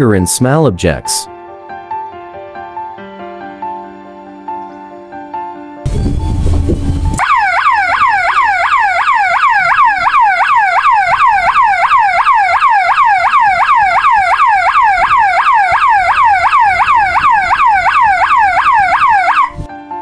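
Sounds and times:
alarm siren wailing: 7.1s - 19.7s.

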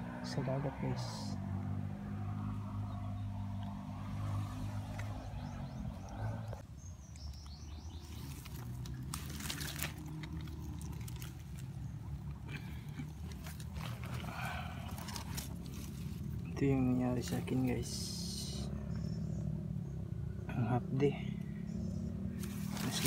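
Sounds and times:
motor engine droning: 0.0s - 23.0s
bird chirps: 2.8s - 9.0s, 16.2s - 20.5s, 21.3s - 23.0s.

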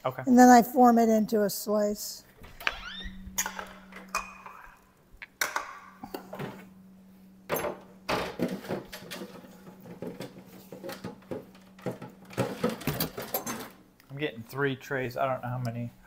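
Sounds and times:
steady low hum: 0.0s - 16.0s
trays and utensils clacking: 7.5s - 13.8s.

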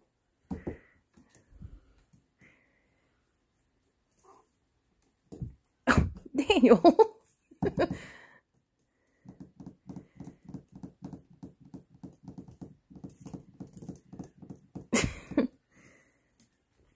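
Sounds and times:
puppy paws tapping on wooden floor: 7.6s - 15.5s.

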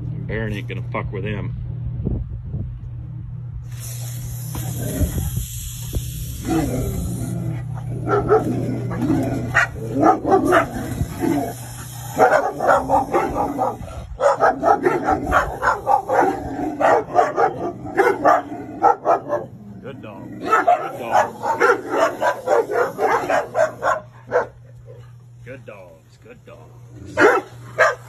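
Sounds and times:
dog barking: 8.0s - 10.8s, 12.2s - 19.6s, 20.4s - 25.0s, 27.2s - 28.0s.

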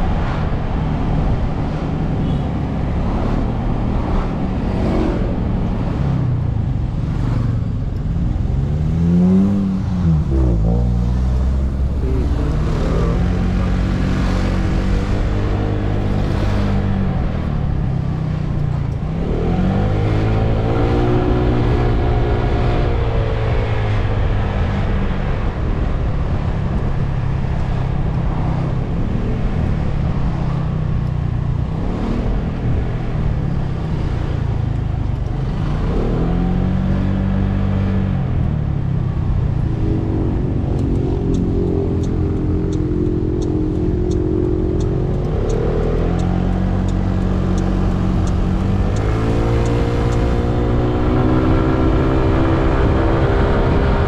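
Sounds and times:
light regular ticking: 39.8s - 50.9s.

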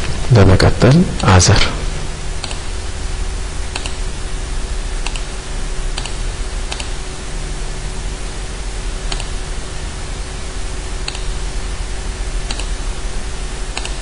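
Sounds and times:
computer mouse double-clicks: 3.7s - 4.0s, 5.0s - 5.3s, 6.0s - 7.0s, 9.1s - 9.3s, 12.5s - 12.7s, 13.8s - 14.0s.

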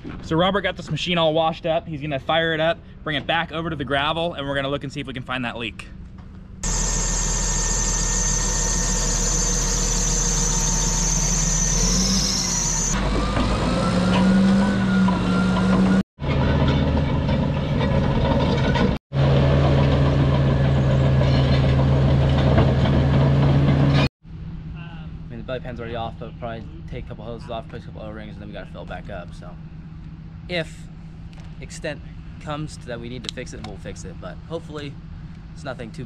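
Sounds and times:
dozer diesel engine running: 6.0s - 24.1s.

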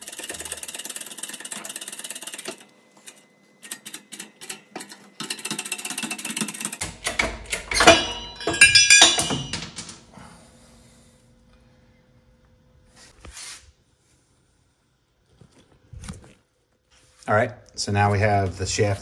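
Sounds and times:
ringing metallic clanks: 6.8s - 10.1s.

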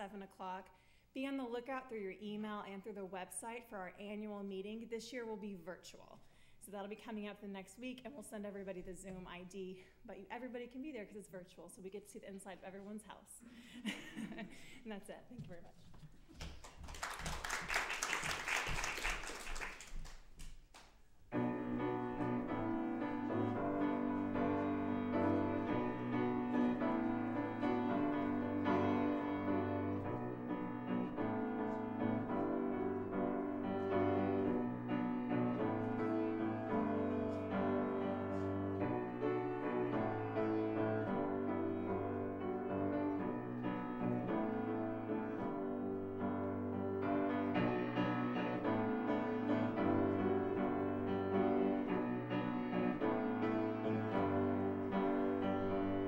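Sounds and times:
slow piano-like keyboard music: 21.3s - 56.0s.

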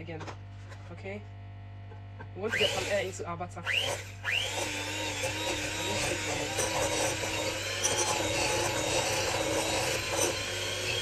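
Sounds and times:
electric hand mixer running: 2.4s - 11.0s.

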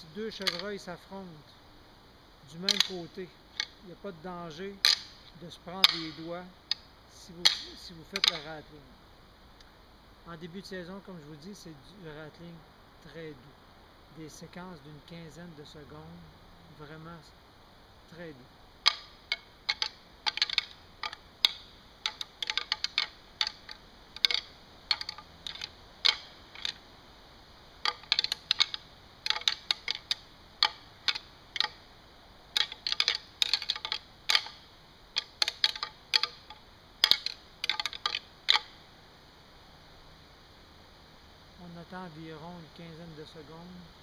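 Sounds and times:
antlers clicking together: 0.3s - 0.8s, 2.6s - 4.2s, 4.8s - 8.5s, 18.8s - 26.8s, 27.8s - 31.8s, 32.5s - 34.6s, 35.2s - 38.8s.

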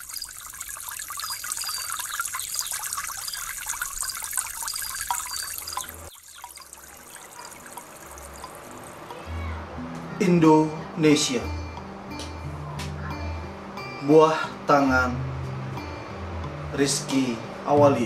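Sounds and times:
trickling water: 0.0s - 9.3s.

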